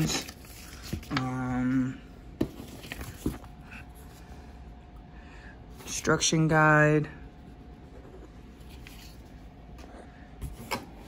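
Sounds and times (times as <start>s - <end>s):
paper and cardboard rustling: 0.0s - 1.7s, 2.4s - 4.3s, 8.6s - 9.4s.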